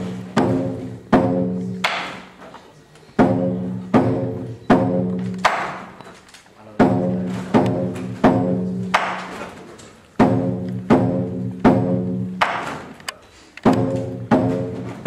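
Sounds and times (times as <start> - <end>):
drum strikes: 0.0 - 2.4, 3.2 - 6.0, 6.7 - 9.5, 10.1 - 13.0, 13.6 - 15.0.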